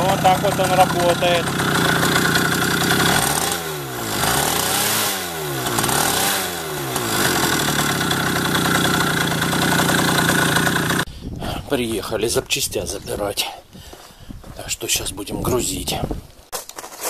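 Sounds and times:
moped engine revving: 0:00.0 - 0:11.1.

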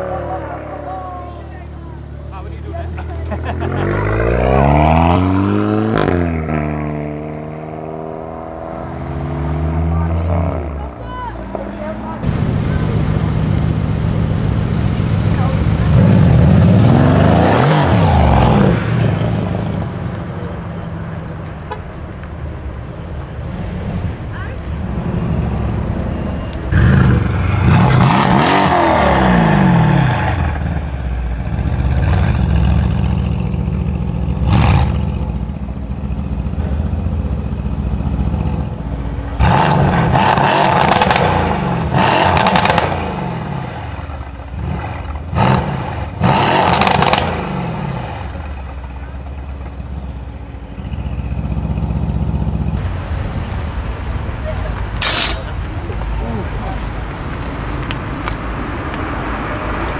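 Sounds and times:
car engine accelerating and revving: 0:03.5 - 0:19.9, 0:24.8 - 0:33.5, 0:39.3 - 0:48.7
exhaust crackles: 0:24.7 - 0:59.9.

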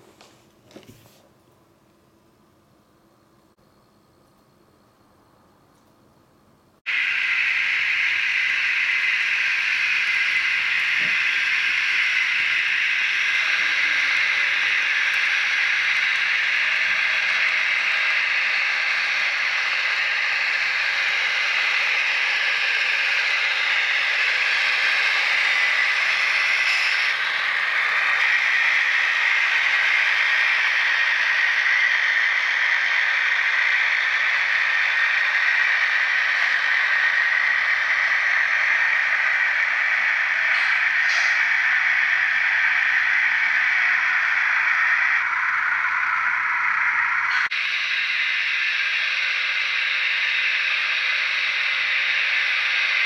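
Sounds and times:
model train diesel engine sound: 0:02.6 - 0:53.0
model train cars rolling on track: 0:06.9 - 0:53.0.

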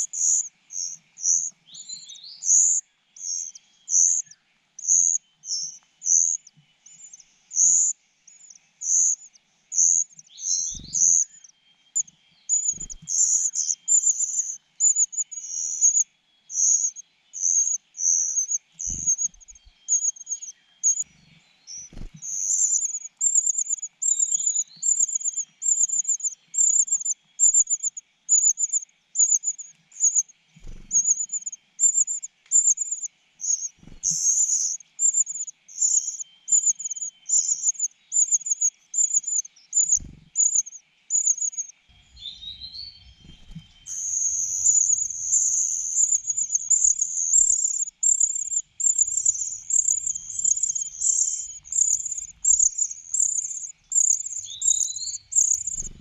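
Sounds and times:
nestlings begging calls: 0:00.0 - 0:56.0
soft low thumps: 0:41.9 - 0:47.1.

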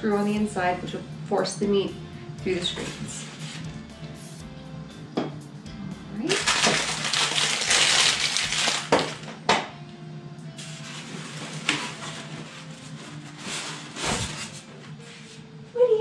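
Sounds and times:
plastic packaging crinkling: 0:06.3 - 0:09.4.

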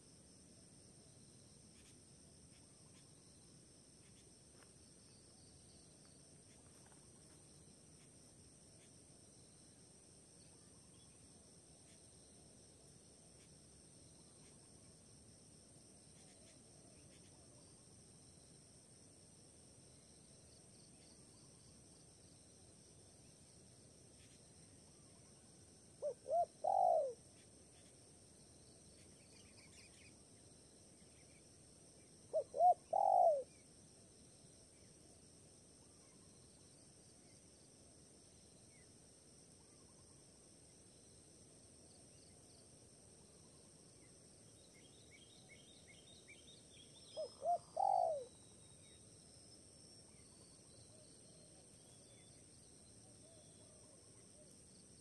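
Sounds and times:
high insect drone: 0:00.0 - 0:55.0
faint small-bird chirps: 0:01.1 - 0:09.7, 0:10.4 - 0:12.5, 0:13.4 - 0:15.0, 0:16.0 - 0:18.5, 0:24.1 - 0:33.7, 0:35.9 - 0:37.7, 0:39.5 - 0:40.2, 0:43.3 - 0:55.0
dove cooing: 0:26.0 - 0:27.2, 0:32.3 - 0:33.5, 0:47.2 - 0:48.3.

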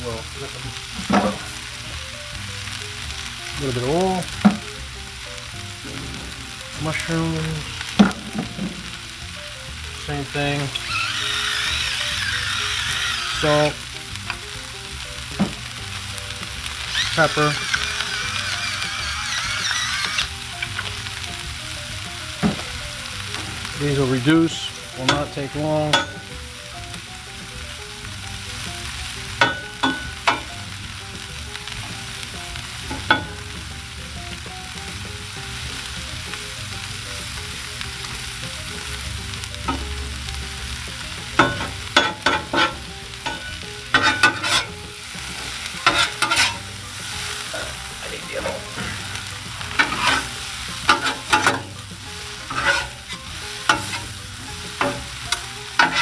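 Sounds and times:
vegetables sizzling on a griddle: 0:00.0 - 0:56.0
metal spatulas scraping griddle: 0:10.5 - 0:13.8, 0:16.8 - 0:20.9, 0:41.4 - 0:47.8, 0:48.4 - 0:51.7, 0:52.3 - 0:56.0.

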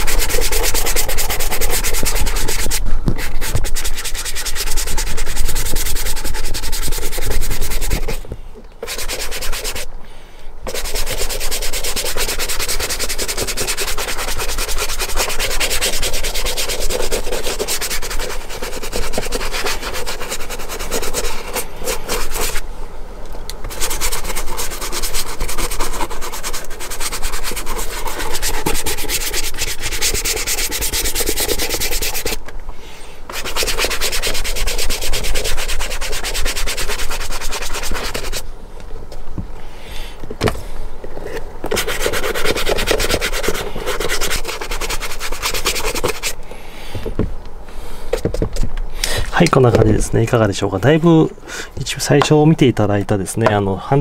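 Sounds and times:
brush scrubbing leather boot: 0:00.0 - 0:09.9, 0:10.7 - 0:22.6, 0:23.7 - 0:32.4, 0:33.3 - 0:38.5, 0:41.6 - 0:46.4.

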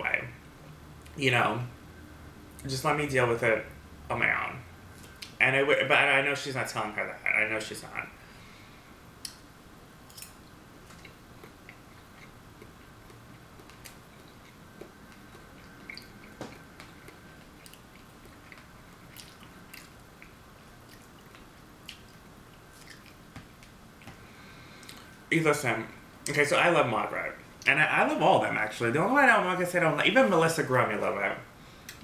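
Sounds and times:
chewing soft food: 0:10.1 - 0:25.2.

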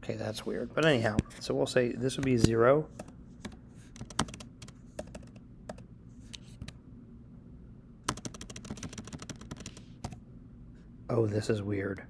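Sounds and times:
keyboard typing: 0:03.0 - 0:05.8, 0:08.1 - 0:10.2.

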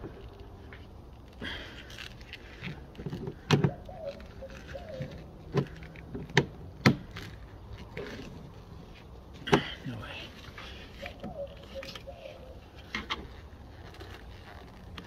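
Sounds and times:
faint creak: 0:12.6 - 0:15.0.

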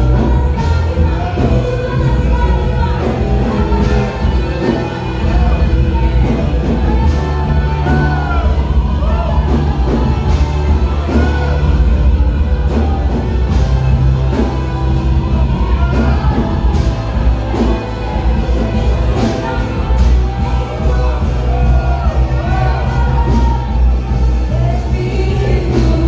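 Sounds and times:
person singing: 0:00.0 - 0:26.0
worship band playing: 0:00.0 - 0:26.0.

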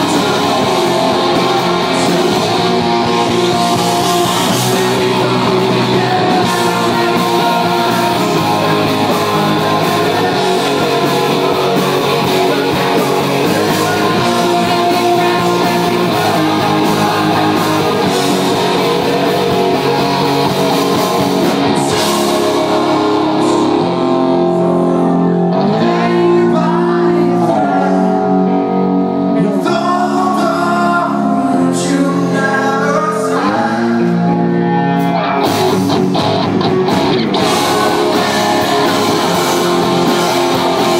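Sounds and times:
drums and cymbals: 0:00.0 - 0:23.9, 0:35.4 - 0:40.9
lead vocal singing: 0:00.0 - 0:34.7, 0:37.0 - 0:40.9
electric guitars: 0:00.0 - 0:40.9.

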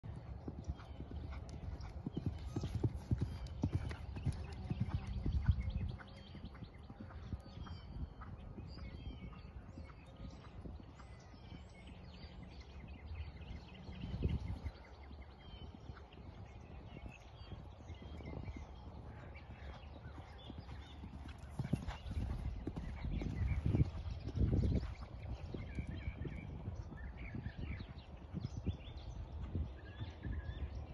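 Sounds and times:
hoofbeats on sand: 0:15.4 - 0:29.1.

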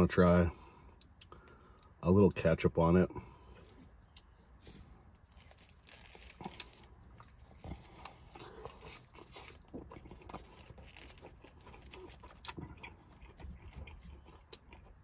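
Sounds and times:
wet chewing mouth clicks: 0:06.4 - 0:15.0.

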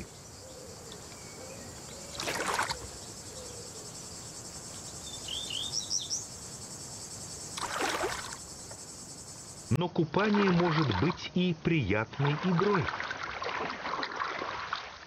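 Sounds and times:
crickets chirring: 0:00.0 - 0:13.4
bird splashing in water: 0:02.1 - 0:03.0, 0:07.5 - 0:08.6, 0:12.2 - 0:15.0.

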